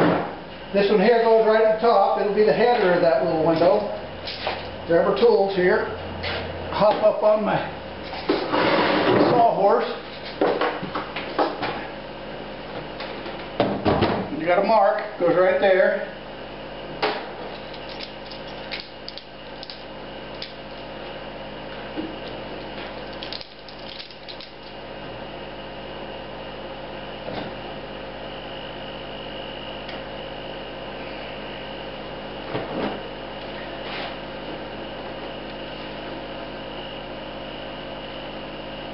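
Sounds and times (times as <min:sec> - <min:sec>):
steady background hum: 0:00.0 - 0:38.9.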